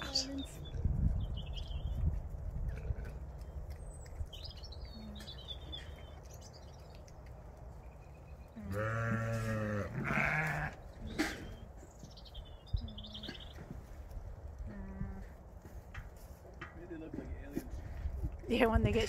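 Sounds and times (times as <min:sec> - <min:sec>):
sheep bleating: 0:08.6 - 0:10.8.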